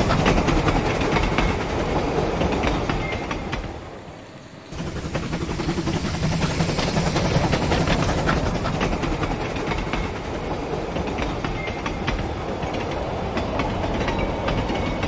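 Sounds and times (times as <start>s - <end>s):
wheels clicking over rail joints: 0.0s - 4.0s, 4.7s - 15.0s
model train motor hum: 4.6s - 11.3s.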